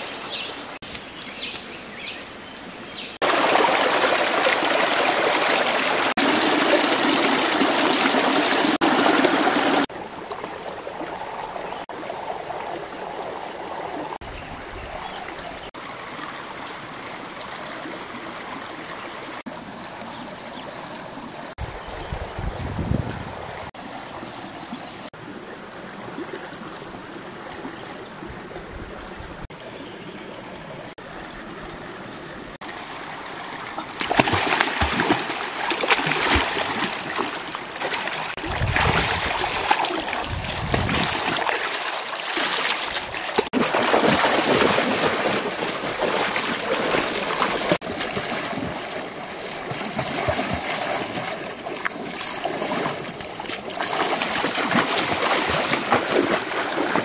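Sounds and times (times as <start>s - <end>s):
shallow stream running: 0.0s - 22.4s, 23.1s - 57.0s
people splashing in water: 34.0s - 57.0s.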